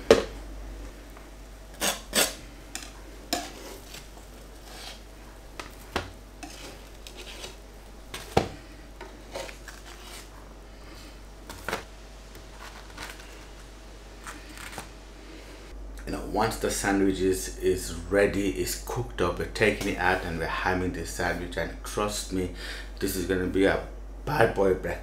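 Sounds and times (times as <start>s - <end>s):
metal utensil scraping grill plate: 1.8s - 5.0s, 6.4s - 8.3s.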